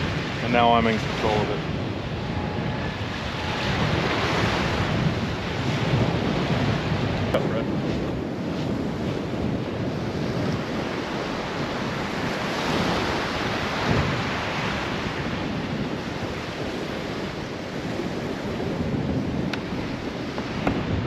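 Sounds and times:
ocean surf washing onto beach: 0.0s - 21.0s
wind rushing across microphone: 0.0s - 21.0s.

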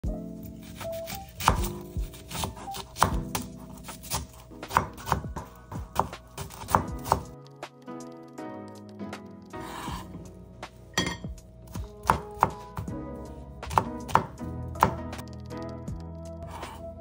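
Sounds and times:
knife dicing on wooden board: 0.7s - 7.3s.

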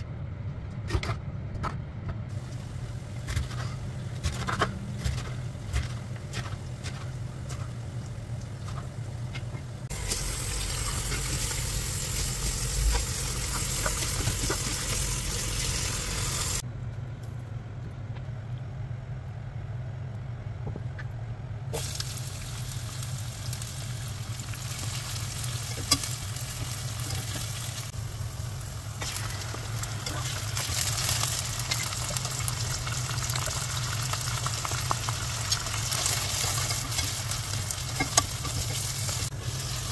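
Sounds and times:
steady low hum: 0.0s - 39.9s
food sizzling in hot oil: 9.9s - 16.6s, 21.8s - 39.9s.

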